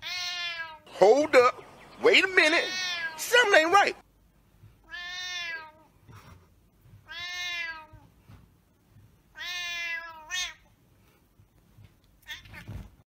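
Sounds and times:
cat meowing: 0:00.0 - 0:00.8, 0:02.5 - 0:03.3, 0:04.8 - 0:05.9, 0:07.1 - 0:08.1, 0:09.3 - 0:10.7, 0:12.2 - 0:12.8.

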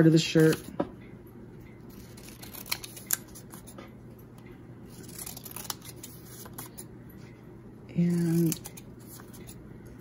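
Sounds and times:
scissors snipping paper: 0:01.9 - 0:03.8, 0:04.9 - 0:06.8, 0:08.0 - 0:09.6.

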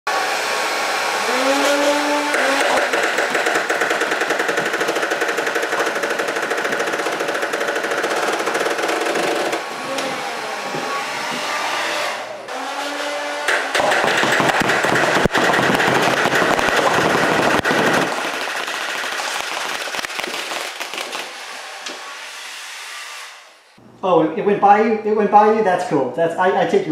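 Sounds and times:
hair dryer blowing: 0:00.1 - 0:15.2
flywheel motors whining: 0:00.8 - 0:14.6
toy blaster firing foam balls: 0:01.3 - 0:09.6, 0:13.4 - 0:21.5.

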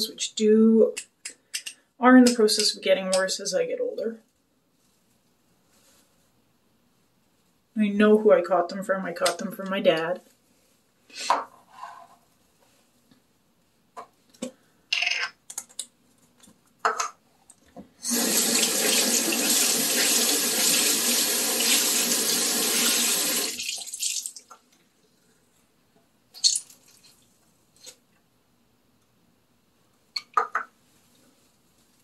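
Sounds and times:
tap water running: 0:18.0 - 0:24.6.

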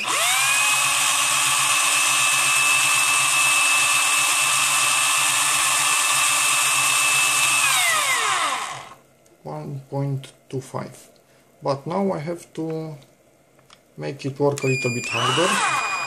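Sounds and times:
cordless screwdriver motor whine: 0:00.0 - 0:09.0, 0:14.6 - 0:16.0.

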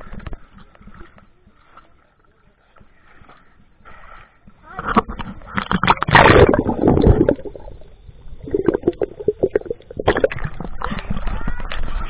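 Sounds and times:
water splashing and gurgling: 0:00.0 - 0:12.0.

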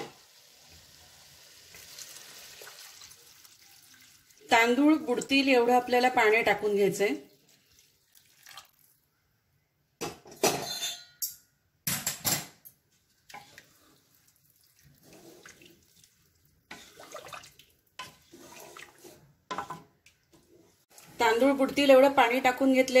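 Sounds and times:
water splashing into pot: 0:01.4 - 0:04.5, 0:07.2 - 0:09.0, 0:13.2 - 0:19.0
spatula stirring sloshing liquid: 0:07.2 - 0:09.0, 0:12.9 - 0:21.8.

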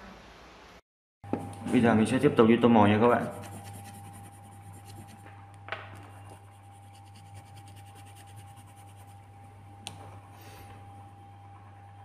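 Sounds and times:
steady low hum: 0:01.2 - 0:12.0
pencil scratching on paper: 0:03.1 - 0:05.2, 0:06.4 - 0:09.2.

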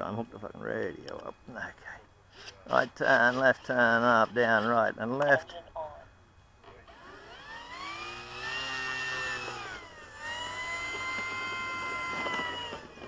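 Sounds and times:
model plane motor whining: 0:06.8 - 0:13.0.

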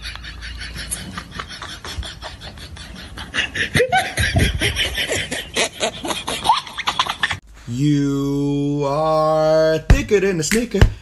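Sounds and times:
person laughing breathily: 0:00.0 - 0:07.4.

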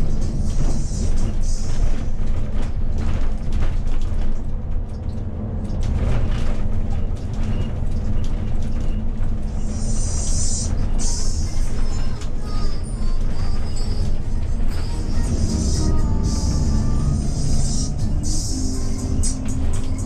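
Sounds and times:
coach engine and road rumble: 0:00.0 - 0:20.0
body rattles and knocks: 0:01.8 - 0:09.5
hiss: 0:09.7 - 0:11.7.

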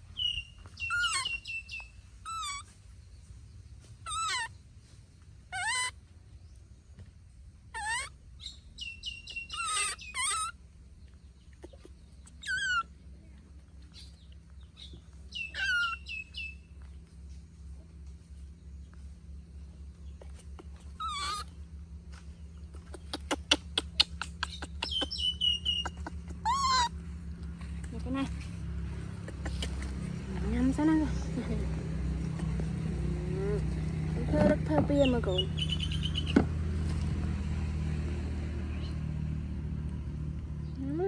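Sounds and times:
baby monkey high-pitched cries: 0:00.8 - 0:02.8, 0:04.0 - 0:04.6, 0:05.5 - 0:06.1, 0:07.7 - 0:10.6, 0:11.6 - 0:13.0, 0:15.3 - 0:16.5, 0:20.2 - 0:21.6, 0:23.0 - 0:27.1.

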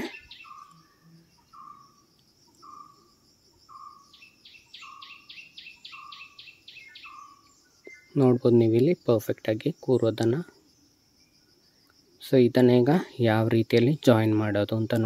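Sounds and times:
faint repeated animal call: 0:00.0 - 0:07.5.

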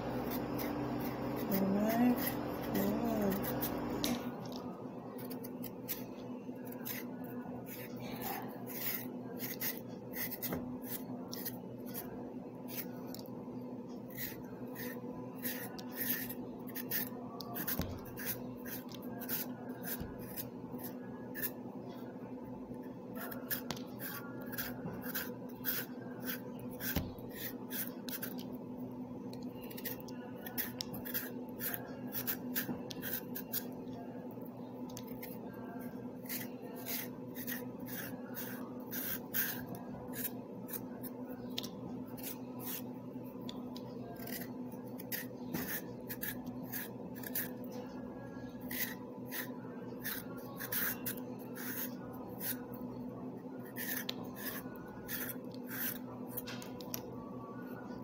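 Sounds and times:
steady low hum: 0:00.0 - 0:58.0
blade scraping carrot skin: 0:44.1 - 0:47.6, 0:48.7 - 0:52.6.

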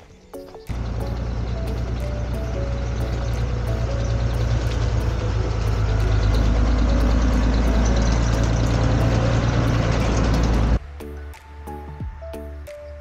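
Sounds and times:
soft background music: 0:00.0 - 0:13.0
road noise: 0:00.4 - 0:13.0
vehicle engine rumble: 0:00.7 - 0:10.8.

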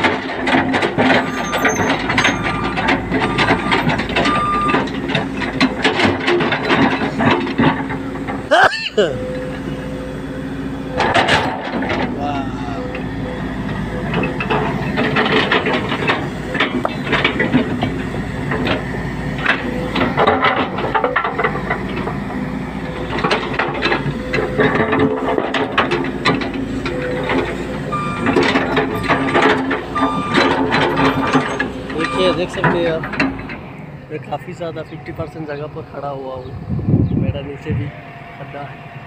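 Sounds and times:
excavator clanks and knocks: 0:00.0 - 0:08.5, 0:10.9 - 0:36.4
excavator engine hum: 0:00.0 - 0:39.0
short squeals: 0:01.2 - 0:04.8.

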